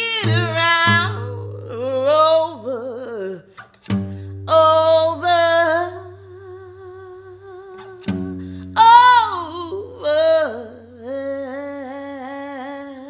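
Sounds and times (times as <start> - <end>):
acoustic guitar strummed: 0.0 - 2.9, 3.5 - 6.4, 7.7 - 10.0
woman singing wordlessly: 0.0 - 3.7, 4.4 - 13.0.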